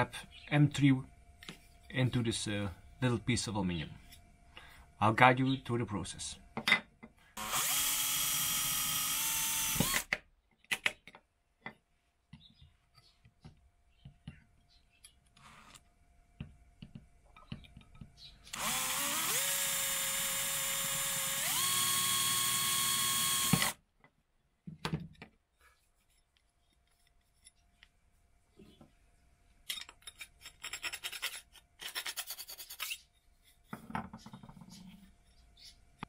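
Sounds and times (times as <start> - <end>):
cordless drill motor whine: 7.4 - 10.1, 18.5 - 23.8.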